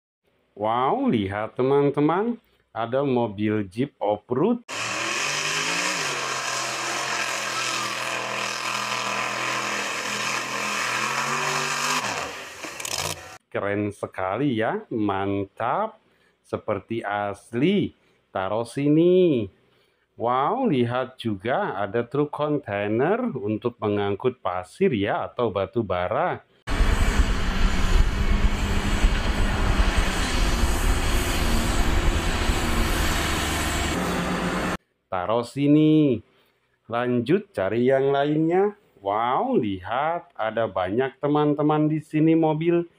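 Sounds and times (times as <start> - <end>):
truck engine at high revs: 4.7 - 13.4, 26.7 - 34.8
diesel truck engine rumbling: 26.7 - 34.8.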